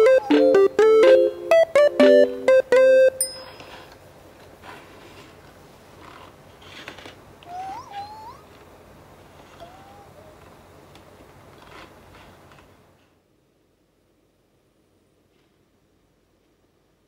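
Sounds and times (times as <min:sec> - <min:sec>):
robot cooing calls: 0:00.0 - 0:00.9.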